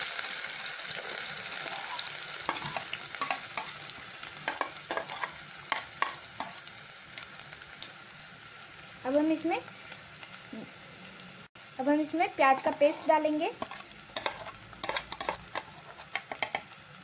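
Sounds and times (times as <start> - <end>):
onions sizzling in hot oil: 0.0 - 17.0
metal spoon scraping plate: 13.6 - 16.7.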